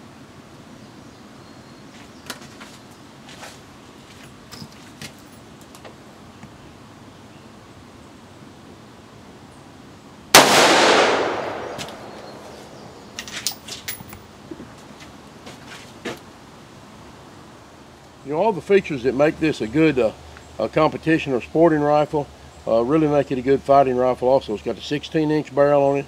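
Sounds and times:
rifle shot with echo: 0:10.4 - 0:13.2.

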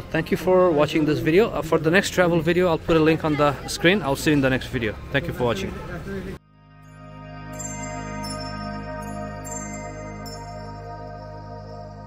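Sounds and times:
light chiming accent: 0:06.4 - 0:12.0
calm background music: 0:06.5 - 0:12.0.

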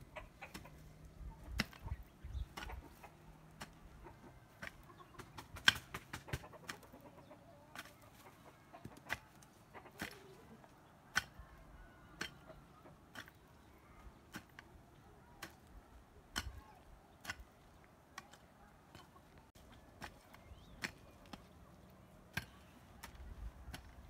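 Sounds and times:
hoe chopping into soil: 0:04.5 - 0:06.9, 0:10.0 - 0:10.2, 0:14.3 - 0:14.6, 0:22.3 - 0:24.0.

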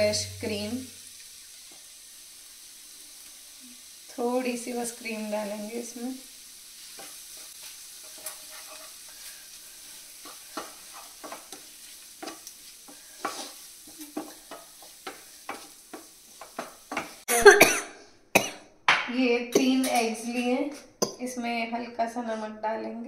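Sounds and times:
food sizzling: 0:00.0 - 0:21.2
spatula scraping frying pan: 0:06.7 - 0:17.3.

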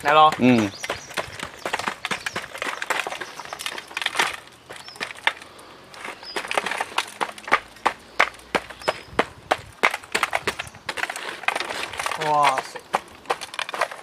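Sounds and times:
hammer knocking on clay crust: 0:00.0 - 0:03.8.

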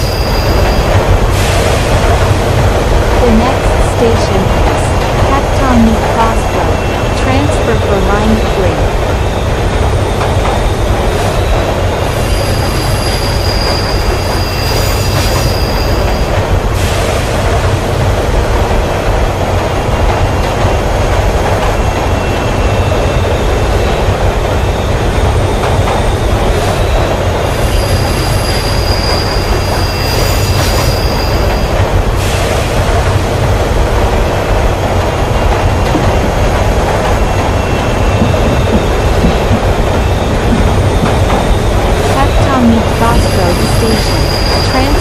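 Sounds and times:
high wheel squeal: 0:00.0 - 0:01.6, 0:11.2 - 0:16.3, 0:26.8 - 0:32.5, 0:42.8 - 0:45.0
train wheels rumbling on rail: 0:00.0 - 0:45.0.

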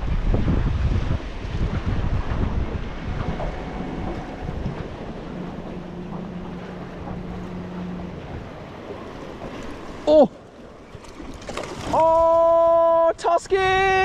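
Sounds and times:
steady low hum: 0:00.0 - 0:10.9
water lapping against boat hull: 0:00.0 - 0:13.1
low rumbling gusts: 0:00.0 - 0:14.0
wind buffeting microphone: 0:00.0 - 0:14.0.

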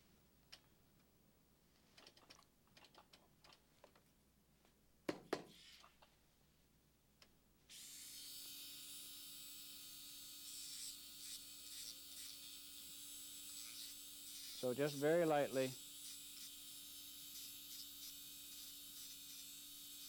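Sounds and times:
dental drill whirring: 0:07.7 - 0:20.0.

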